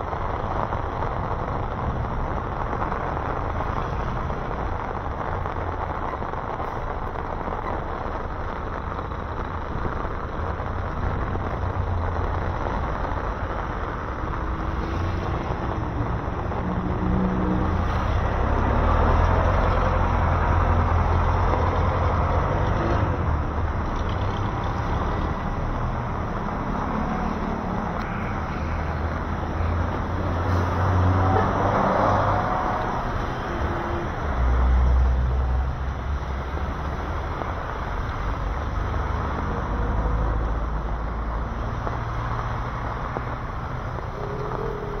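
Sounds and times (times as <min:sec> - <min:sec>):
tyres hissing on wet road: 0:00.0 - 0:45.0
vehicle engines running: 0:00.0 - 0:45.0.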